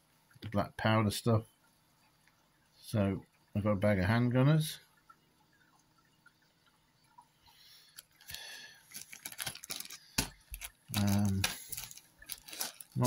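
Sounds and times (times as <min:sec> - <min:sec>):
plastic bag crinkling with clicks: 0:08.0 - 0:13.0.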